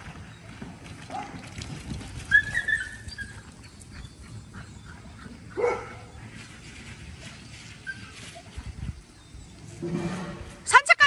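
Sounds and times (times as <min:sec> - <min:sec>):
dog barking: 0:05.6 - 0:06.1.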